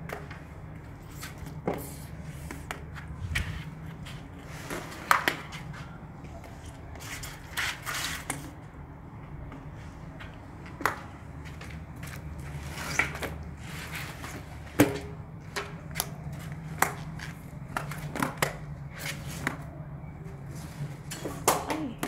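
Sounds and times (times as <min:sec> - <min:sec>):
low steady hum: 0:02.2 - 0:06.8.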